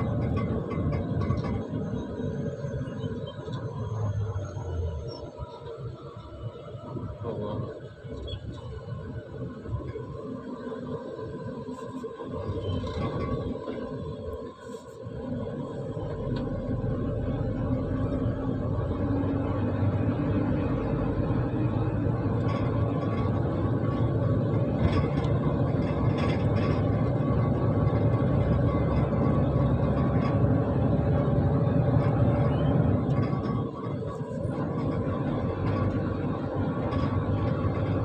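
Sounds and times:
lorry diesel engine running: 0:00.0 - 0:38.0
road rumble: 0:00.0 - 0:38.0.

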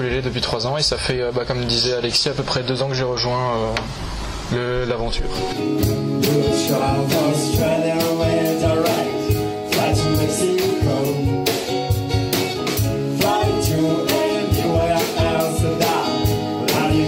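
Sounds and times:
strummed acoustic guitar: 0:05.4 - 0:17.0
woman and man singing: 0:05.8 - 0:11.6, 0:13.0 - 0:17.0.

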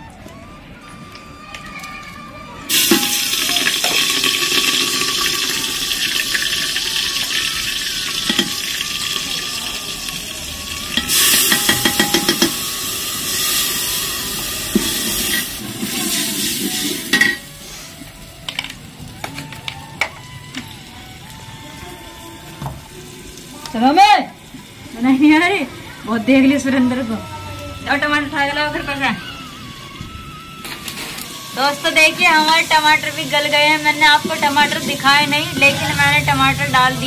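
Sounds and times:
food sizzling in hot oil: 0:02.7 - 0:37.0
metal ladle scraping a pot: 0:10.9 - 0:14.0.

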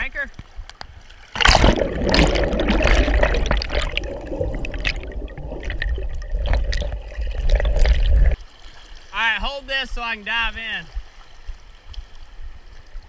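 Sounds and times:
muffled underwater water rush: 0:00.9 - 0:09.1
low rumble: 0:01.6 - 0:08.4.

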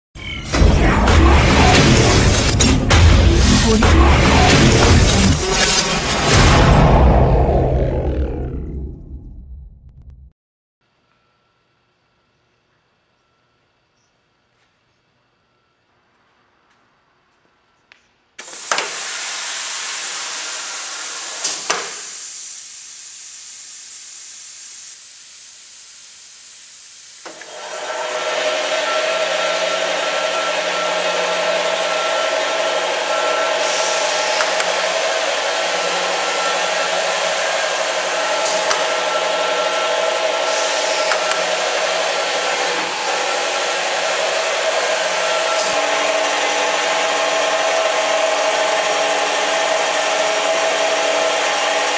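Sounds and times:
saw running hum: 0:00.5 - 0:09.0, 0:27.2 - 0:51.9
saw rushing hiss: 0:18.4 - 0:51.9.

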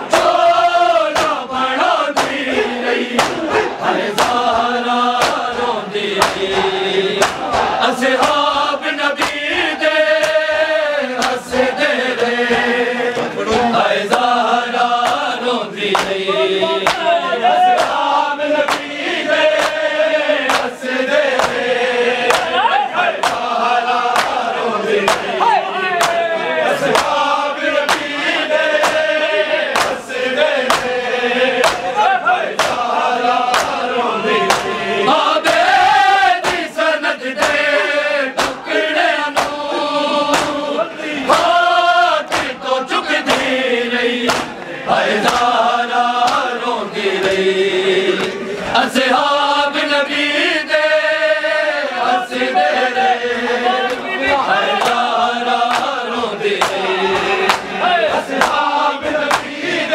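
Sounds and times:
men chanting in unison: 0:00.0 - 0:59.9
hands striking chests: 0:05.2 - 0:05.5, 0:06.2 - 0:08.4, 0:24.1 - 0:24.4, 0:30.6 - 0:31.0, 0:38.4 - 0:38.6, 0:44.3 - 0:44.6.

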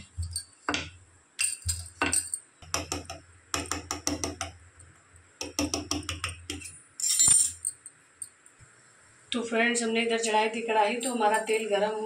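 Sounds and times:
fork tapping on stone countertop: 0:02.0 - 0:04.6, 0:05.4 - 0:06.7.

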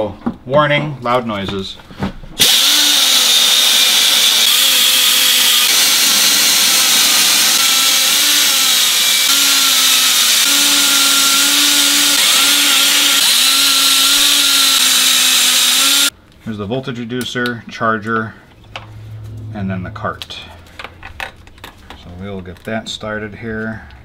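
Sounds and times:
die grinder whining: 0:02.4 - 0:16.1.

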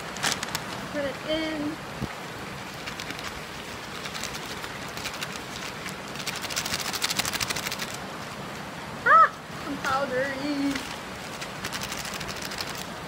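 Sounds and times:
paper bag crinkling: 0:00.0 - 0:00.8, 0:10.7 - 0:12.9.

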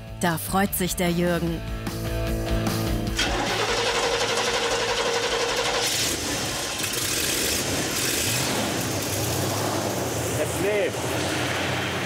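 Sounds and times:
sports car engine running: 0:02.4 - 0:12.0.

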